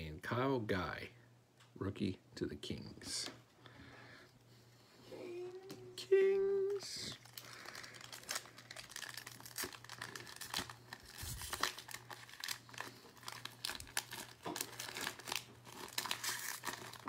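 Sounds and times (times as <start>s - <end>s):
foil wrapper crinkling and tearing: 6.6s - 17.0s.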